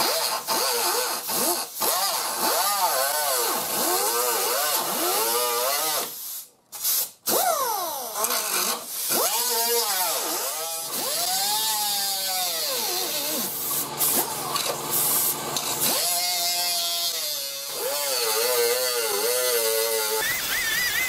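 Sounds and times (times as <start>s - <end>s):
air grinder cutting whine: 8.3s - 21.0s.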